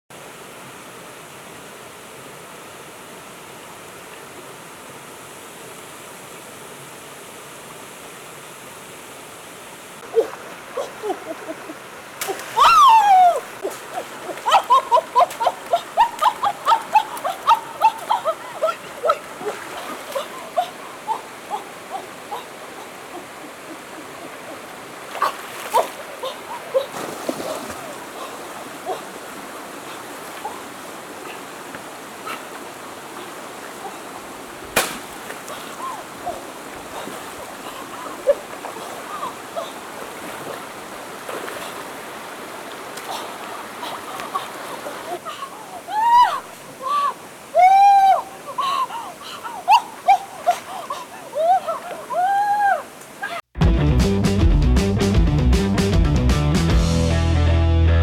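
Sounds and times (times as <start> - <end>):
river water rushing: 0.2 - 53.4
water splashing and sloshing: 10.0 - 53.5.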